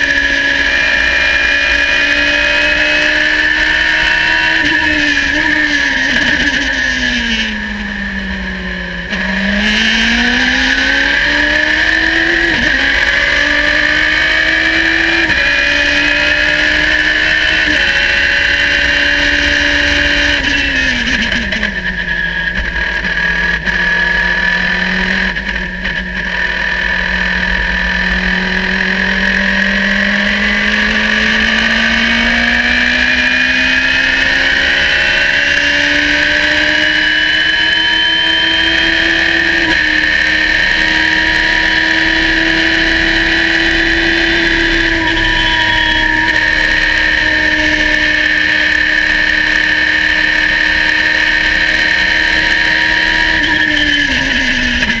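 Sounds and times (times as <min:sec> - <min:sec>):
racing car engine revving: 0:00.0 - 0:55.0.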